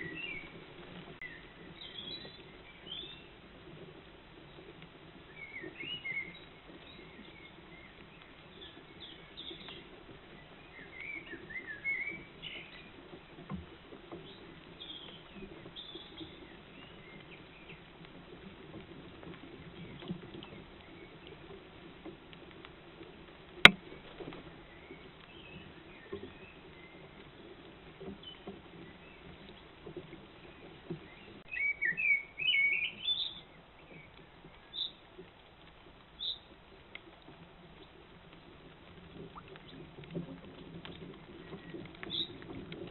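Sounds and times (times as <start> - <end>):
songbirds chirping: 0.0 - 42.9.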